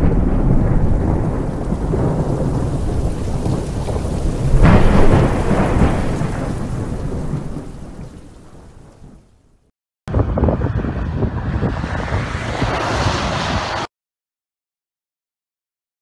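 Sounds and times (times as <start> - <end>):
sharp thunderclap: 0.0 - 9.4
thunder rumbling: 0.0 - 9.4
steady rain: 0.0 - 9.6.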